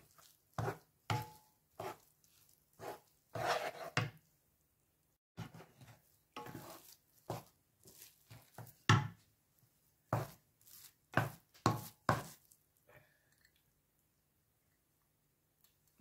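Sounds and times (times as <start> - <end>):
wooden spoon scraping frying pan: 0.0 - 4.2, 5.4 - 9.1, 10.1 - 12.5.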